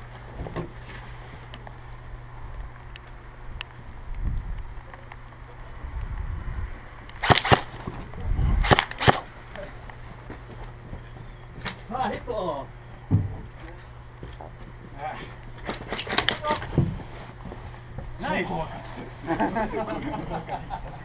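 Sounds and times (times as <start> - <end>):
airsoft gun shots: 7.2 - 7.8, 8.6 - 9.3.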